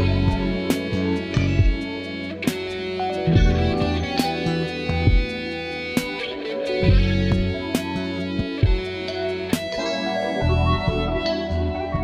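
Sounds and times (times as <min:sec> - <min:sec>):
bass notes: 0:00.0 - 0:02.0, 0:03.2 - 0:05.8, 0:06.8 - 0:09.0, 0:10.4 - 0:12.0
guitar-led background music: 0:00.0 - 0:12.0.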